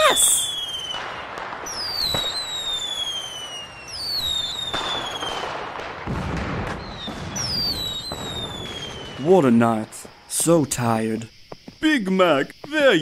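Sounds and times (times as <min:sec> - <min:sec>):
whistling rockets: 0:00.0 - 0:09.6
fireworks crackling: 0:00.0 - 0:10.9.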